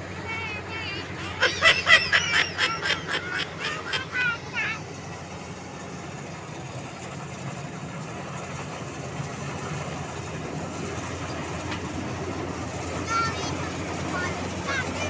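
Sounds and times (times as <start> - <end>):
combine harvester engine droning: 0.0 - 15.0.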